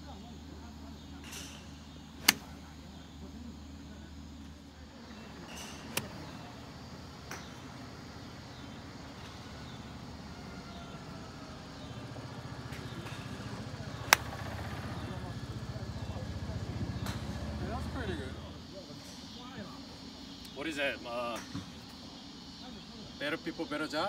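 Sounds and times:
golf clubs striking balls: 1.3 - 2.7, 5.4 - 6.6, 12.8 - 14.6.

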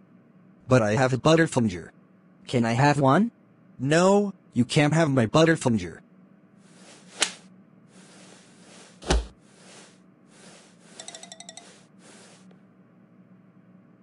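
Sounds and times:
faint steady hum: 0.0 - 14.0
rattle of bright pings: 10.9 - 12.4.

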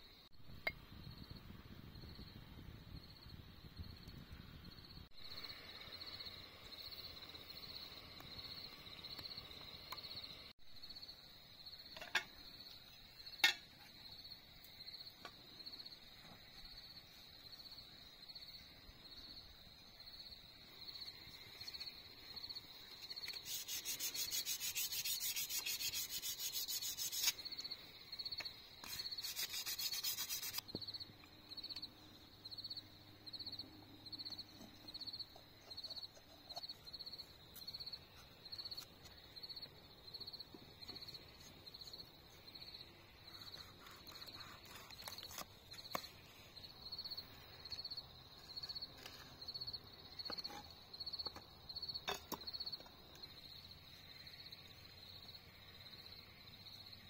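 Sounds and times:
insect chirping: 0.0 - 57.0
loud rasping scraping: 23.3 - 27.4, 28.8 - 30.6.

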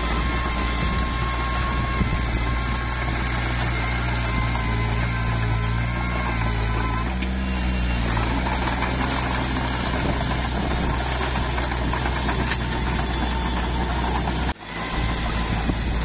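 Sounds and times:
bulldozer diesel engine running: 0.0 - 16.0.

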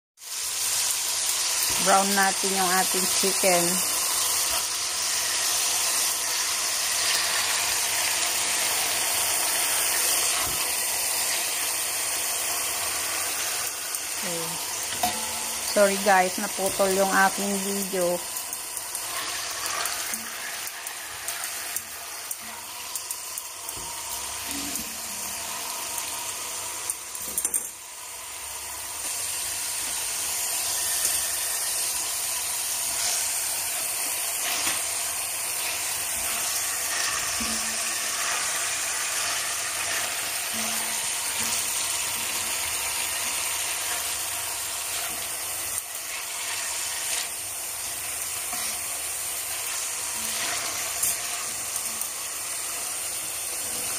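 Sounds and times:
chicken sizzling in oil: 0.2 - 53.9
spatula knocking and scraping pot: 14.9 - 15.6.

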